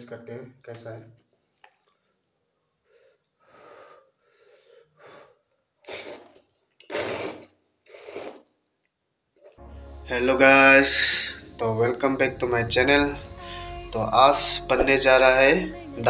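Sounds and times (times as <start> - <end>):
noodles slurping: 5.8 - 8.8.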